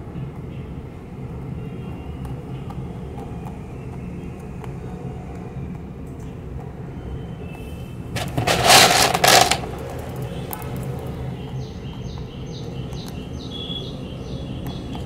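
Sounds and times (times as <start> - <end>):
rabbit chewing dry pellets: 8.1 - 11.1
loud rustling: 8.2 - 10.1.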